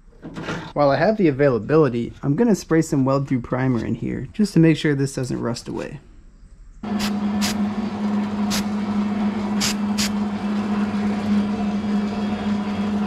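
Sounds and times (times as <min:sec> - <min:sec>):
aerosol can spraying: 0:06.9 - 0:07.6, 0:08.5 - 0:08.7, 0:09.6 - 0:10.2.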